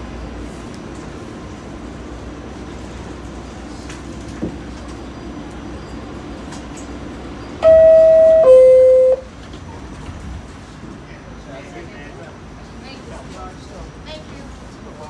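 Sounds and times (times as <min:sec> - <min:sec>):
train low hum: 0:00.0 - 0:15.0
two-note door chime: 0:07.6 - 0:09.3.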